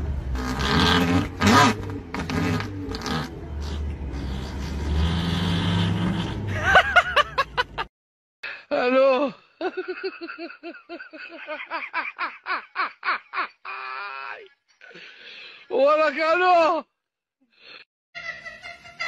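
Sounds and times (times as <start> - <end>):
car engine running: 0.0 - 7.8
person laughing: 6.5 - 7.9, 9.6 - 14.2.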